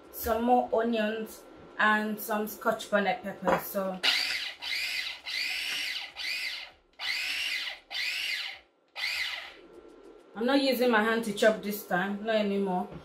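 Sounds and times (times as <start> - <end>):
mini chopper motor whine: 4.0 - 9.6.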